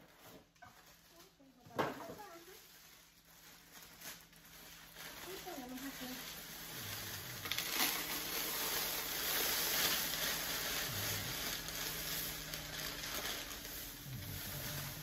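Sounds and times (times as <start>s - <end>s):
cereal pouring into plastic container: 3.2s - 15.0s.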